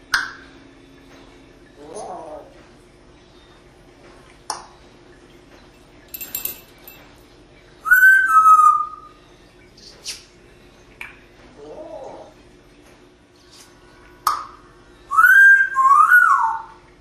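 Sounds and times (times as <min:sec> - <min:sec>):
parrot calling and whistling: 0:07.8 - 0:09.2, 0:15.1 - 0:16.8.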